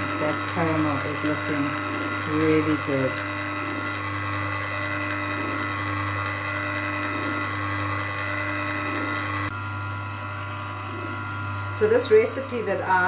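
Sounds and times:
ice cream maker motor humming: 0.0 - 13.0.

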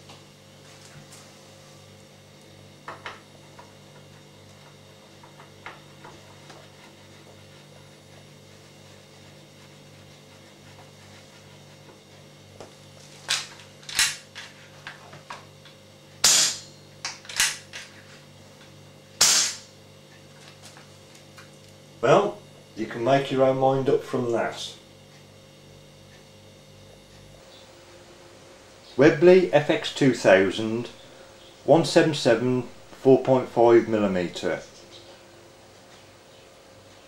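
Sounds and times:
air rifle shots: 16.2 - 16.7, 19.2 - 19.7.

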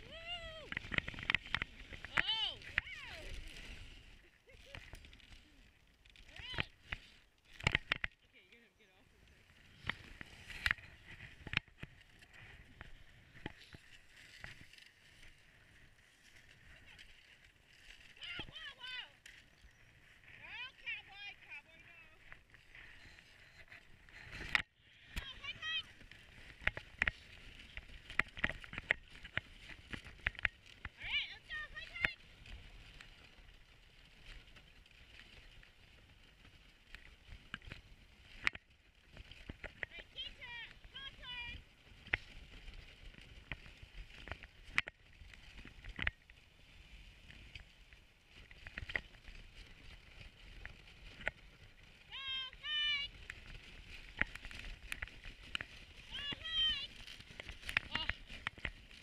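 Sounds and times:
wooden sled knocking: 0.0 - 3.5, 48.5 - 59.0.

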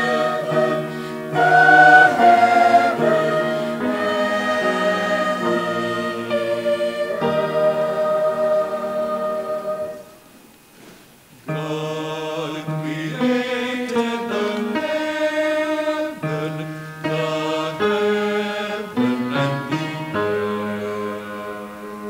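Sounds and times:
slow keyboard chords: 0.0 - 10.3.

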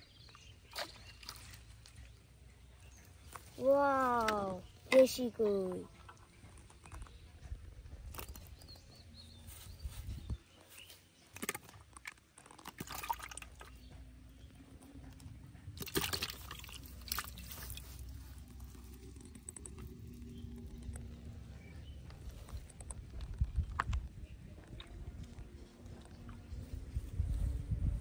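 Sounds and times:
fish splashing in bucket: 11.4 - 13.8, 15.8 - 17.8.

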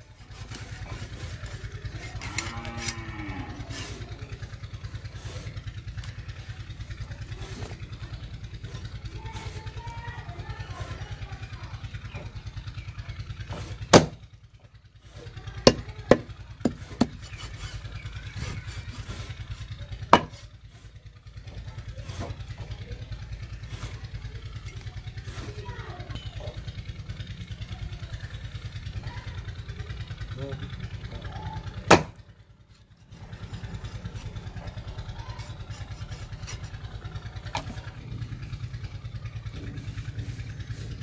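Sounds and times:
low engine hum: 0.0 - 41.0
knife chopping fish on wood: 13.6 - 14.2, 15.7 - 17.8, 20.1 - 20.4, 31.9 - 32.2.

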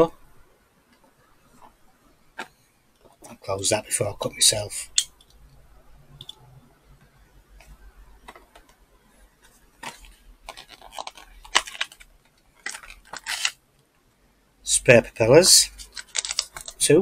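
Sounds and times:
packaging clicks and scrapes: 9.8 - 13.6, 15.7 - 16.8.

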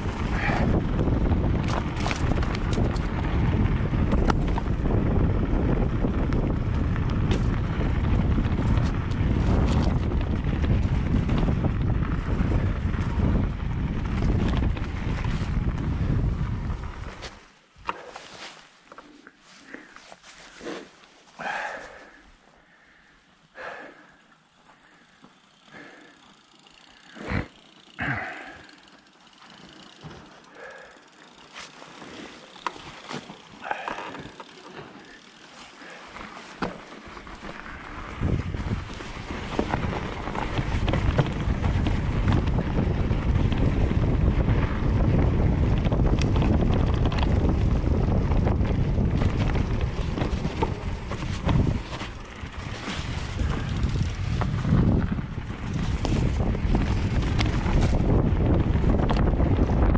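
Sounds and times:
wind noise on microphone: 0.0 - 17.9, 37.1 - 59.9
bike tyre rumble: 0.0 - 59.9
bike clicks and knocks: 0.2 - 16.0, 24.6 - 59.8.

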